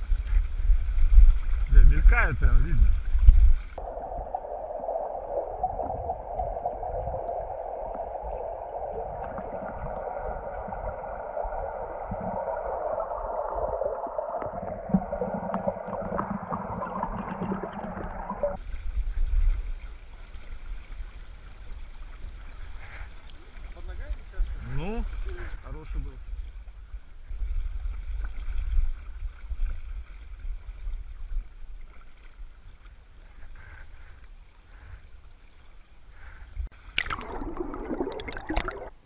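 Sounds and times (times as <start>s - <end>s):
wind on microphone: 0.0s - 16.8s
river current rushing underwater: 0.0s - 26.2s, 36.0s - 39.0s
low hum: 2.9s - 18.6s.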